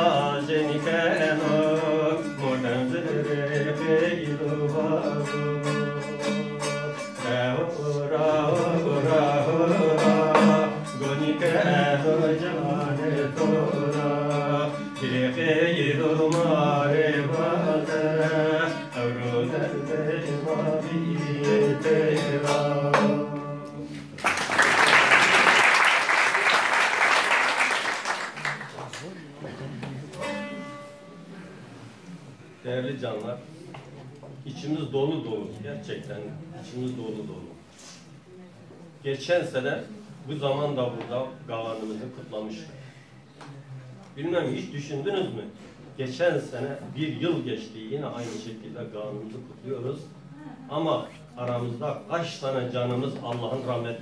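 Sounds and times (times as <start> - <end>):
long-necked lute playing: 0.0 - 23.9, 30.1 - 32.0
man singing folk song: 0.0 - 24.0
audience applause: 24.2 - 29.3.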